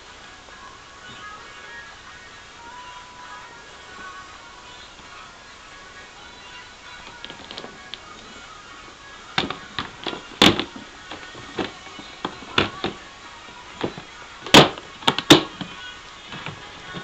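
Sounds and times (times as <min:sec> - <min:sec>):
quiet background music: 0:00.0 - 0:17.0
plastic tubs knocking: 0:09.4 - 0:13.0, 0:13.8 - 0:17.0.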